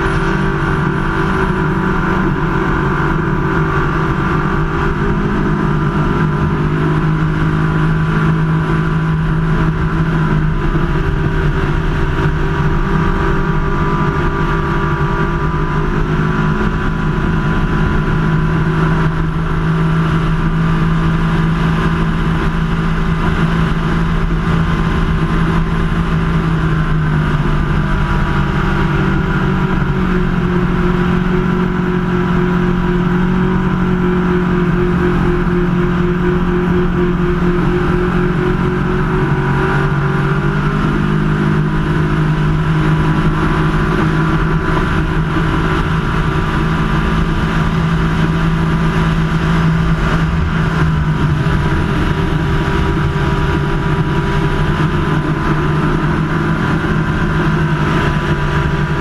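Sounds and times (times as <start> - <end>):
boat engine running hard: 0.0 - 59.0
wind and water rushing: 38.6 - 59.0.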